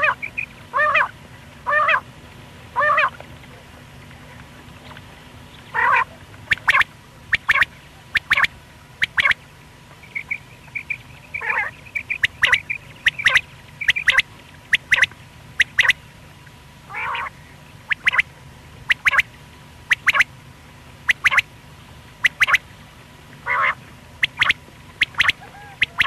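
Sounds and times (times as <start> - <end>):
quail calling: 0.0 - 2.1, 2.8 - 3.2, 5.7 - 9.4, 10.0 - 16.0, 16.9 - 17.3, 17.9 - 18.3, 18.9 - 19.3, 19.9 - 20.3, 21.1 - 21.5, 22.2 - 22.6, 23.4 - 26.0.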